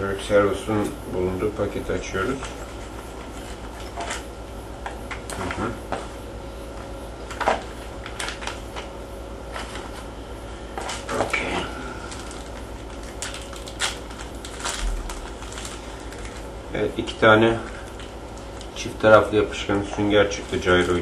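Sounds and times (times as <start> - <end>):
plastic bags crinkling: 10.8 - 21.0.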